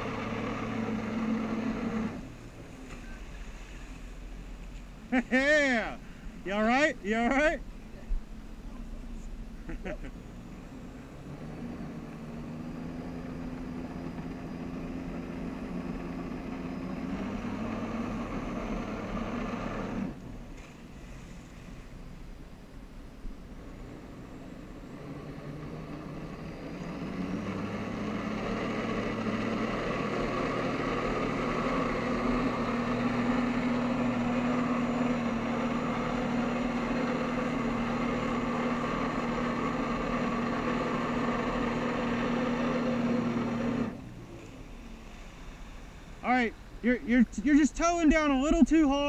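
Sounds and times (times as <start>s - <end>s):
personal watercraft engine droning: 0.0s - 49.0s.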